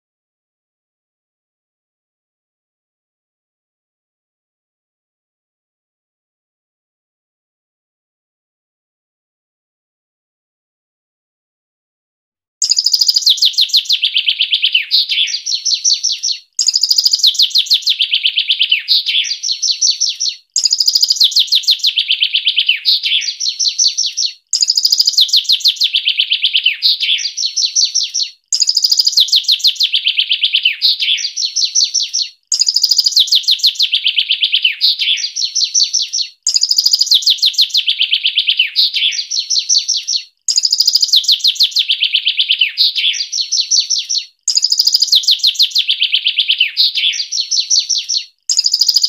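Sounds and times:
songbird singing fast phrase: 0:12.6 - 0:49.0.

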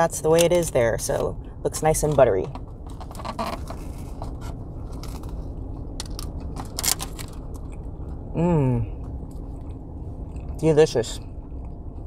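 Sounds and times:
person humming mmm: 0:08.3 - 0:09.0
person chewing bread: 0:08.9 - 0:10.6.

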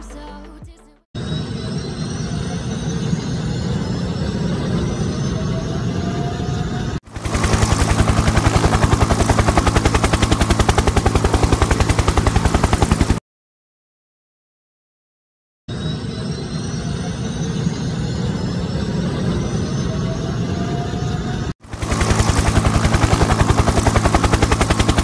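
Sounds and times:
helicopter turbine whine: 0:01.2 - 0:13.2, 0:15.8 - 0:25.0
fast rotor chop: 0:07.1 - 0:13.2, 0:21.6 - 0:25.0.

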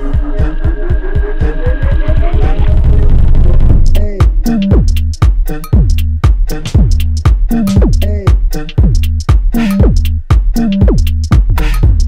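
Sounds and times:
rising synth sweep: 0:00.0 - 0:04.0
electronic music with fast beat: 0:00.0 - 0:12.0.

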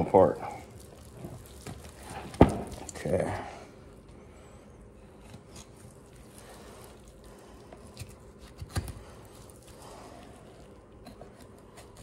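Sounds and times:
wet squishing of meat: 0:00.0 - 0:12.0.

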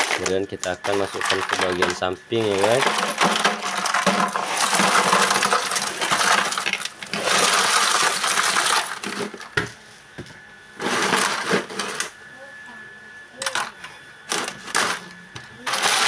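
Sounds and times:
ice cubes clattering against metal: 0:00.0 - 0:09.5, 0:10.8 - 0:12.1, 0:13.4 - 0:16.0.

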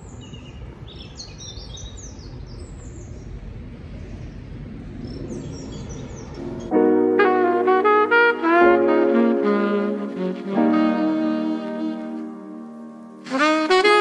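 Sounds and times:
small birds chirping: 0:00.0 - 0:06.7
low outdoor rumble: 0:02.2 - 0:07.7.

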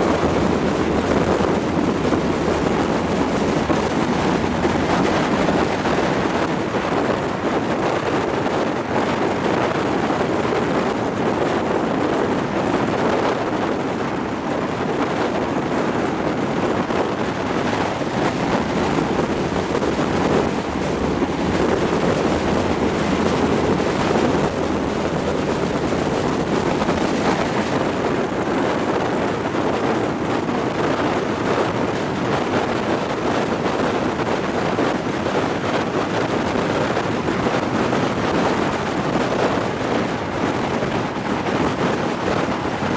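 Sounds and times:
train running noise: 0:00.0 - 0:42.9
wind buffeting microphone: 0:00.0 - 0:42.9.

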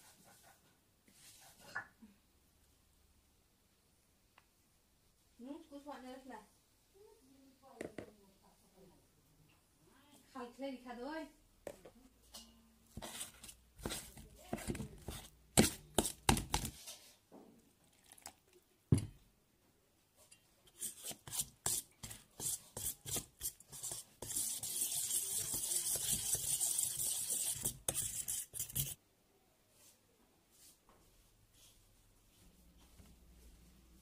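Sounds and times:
spoon scraping steel bowl: 0:20.3 - 0:29.0.

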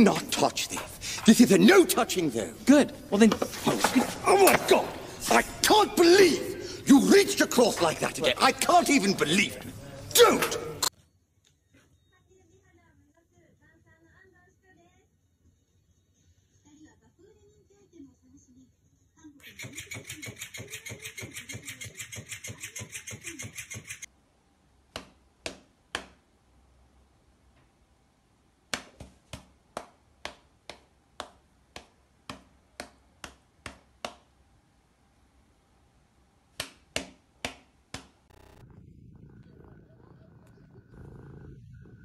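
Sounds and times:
cat purring: 0:38.3 - 0:42.0.

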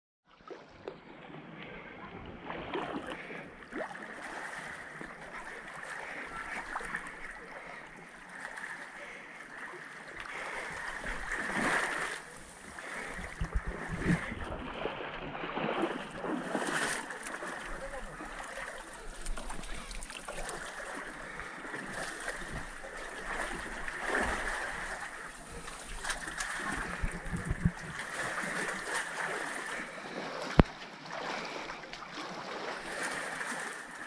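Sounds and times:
waves lapping on pebble shore: 0:10.1 - 0:13.2.

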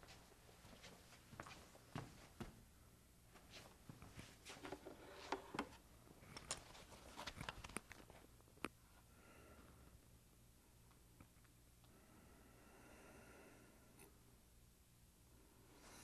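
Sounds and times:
cable handling clicks and rustles: 0:04.2 - 0:08.8.

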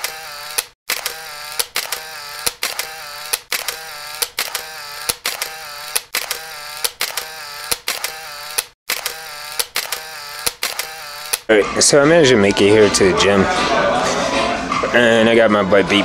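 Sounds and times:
camera film wind-on whirring: 0:00.0 - 0:11.5
camera shutter clicks: 0:00.0 - 0:11.5.

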